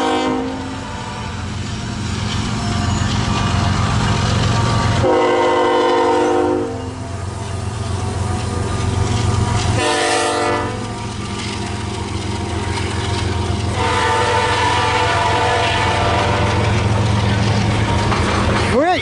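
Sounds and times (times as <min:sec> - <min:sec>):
locomotive air horn blasts: 0:00.0 - 0:01.5, 0:05.0 - 0:07.0, 0:09.8 - 0:10.8, 0:13.7 - 0:16.7
low train rumble: 0:00.0 - 0:19.0.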